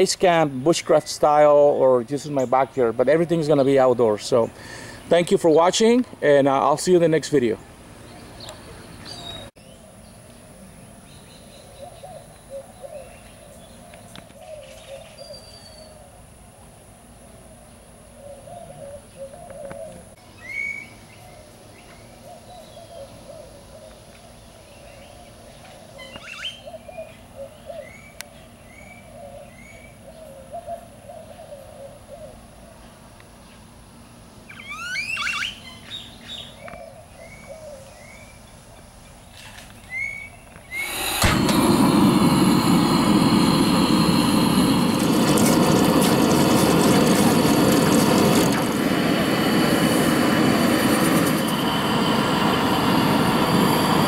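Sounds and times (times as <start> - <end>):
background bird chatter: 0.0 - 16.3, 17.7 - 40.8
sweeping bird calls: 7.5 - 16.2, 18.1 - 32.9, 34.4 - 41.2
short rising bird chirps: 26.0 - 26.8, 34.5 - 36.5, 39.9 - 45.2.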